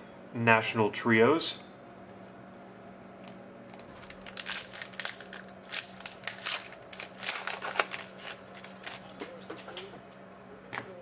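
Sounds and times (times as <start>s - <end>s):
wrapper tearing and crinkling: 3.7s - 9.1s.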